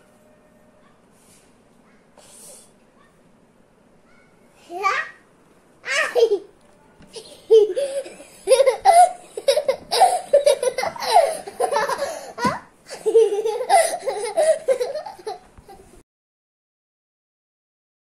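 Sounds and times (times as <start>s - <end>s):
young child laughing: 5.8s - 16.0s.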